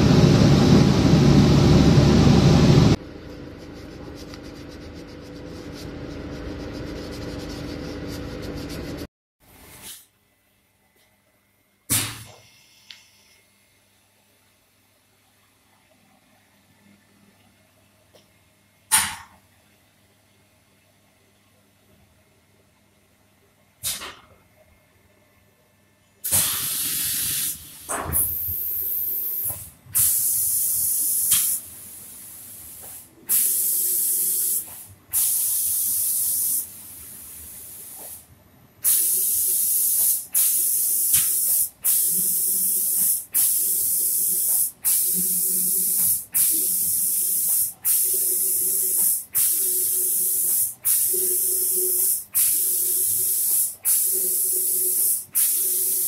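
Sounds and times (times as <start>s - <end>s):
spray gun hissing: 32.4s - 36.7s, 38.8s - 56.0s.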